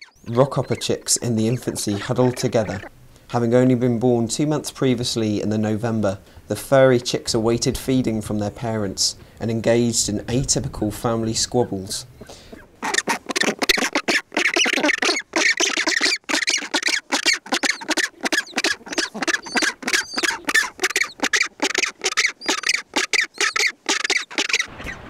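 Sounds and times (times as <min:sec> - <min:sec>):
penguins squawking: 0:00.0 - 0:02.9, 0:12.2 - 0:24.8.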